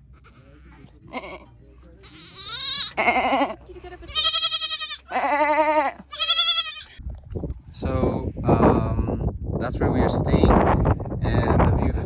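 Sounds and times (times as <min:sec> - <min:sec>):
animal bleating: 0:00.0 - 0:07.0.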